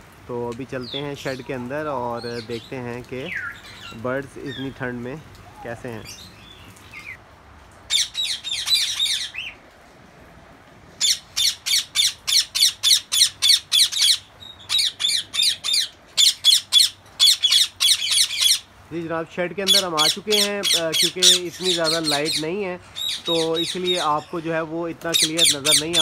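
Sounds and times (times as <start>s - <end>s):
parrots squawking: 7.9s - 9.6s, 11.0s - 18.7s, 19.6s - 26.0s.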